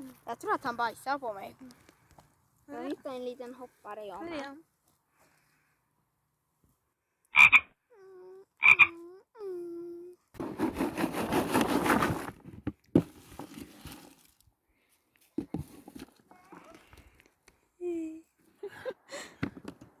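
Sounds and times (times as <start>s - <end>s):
frog-like croaks: 7.3s - 7.8s, 8.6s - 9.0s
rustling noise: 10.4s - 14.4s.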